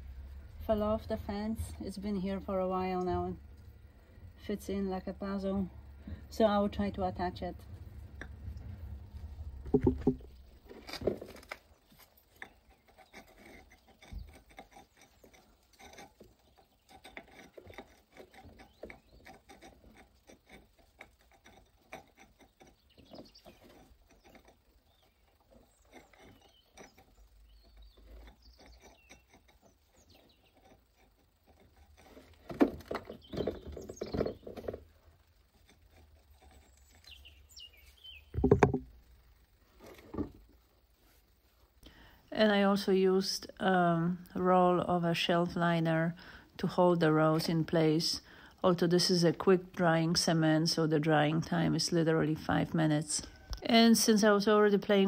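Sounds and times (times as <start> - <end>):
stone scraping and tapping: 9.7 - 11.5, 38.4 - 38.9
birds chirping: 21.8 - 30.9, 32.8 - 34.8, 36.2 - 38.9.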